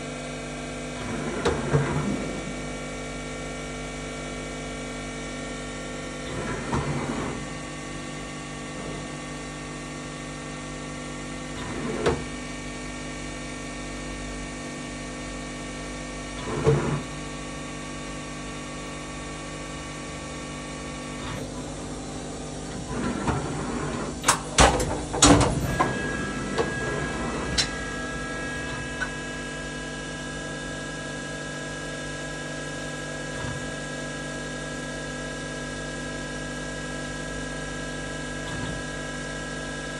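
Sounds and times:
machine motors humming: 19.2 - 31.0
machine whine: 19.8 - 31.0
mechanical clunks and clicks: 22.7 - 29.2.

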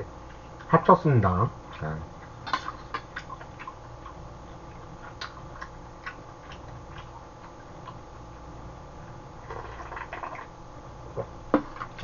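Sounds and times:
chewing clicks and smacks: 1.7 - 8.4.

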